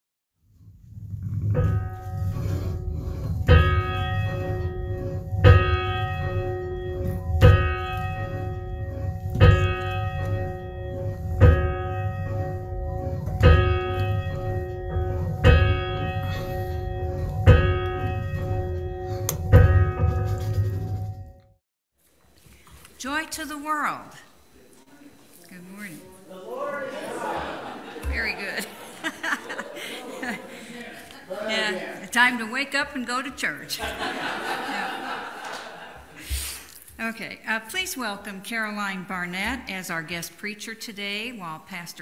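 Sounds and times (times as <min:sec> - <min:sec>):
church bell tolling: 0:01.4 - 0:21.3.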